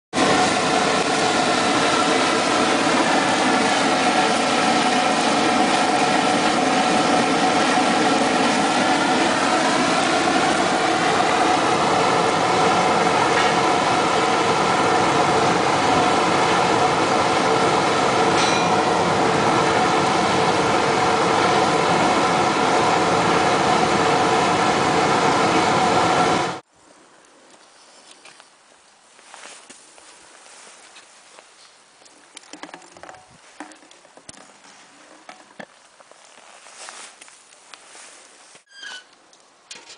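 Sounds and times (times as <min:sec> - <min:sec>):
furnace burner roaring: 0:00.2 - 0:26.6.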